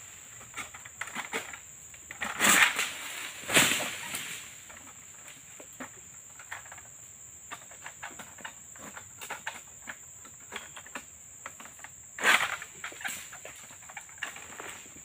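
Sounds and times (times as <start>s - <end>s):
light ticks and rustles: 4.0s - 15.0s.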